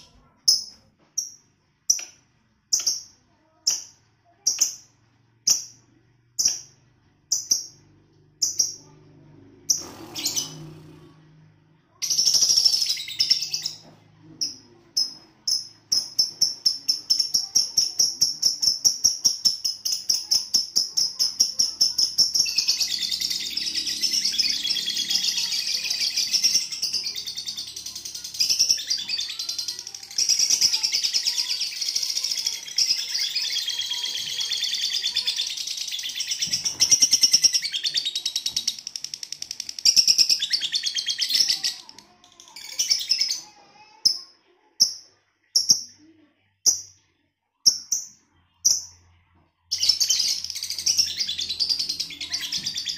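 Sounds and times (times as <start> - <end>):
lovebird chirping and trilling: 9.6 - 11.1, 12.0 - 46.0, 46.6 - 52.9.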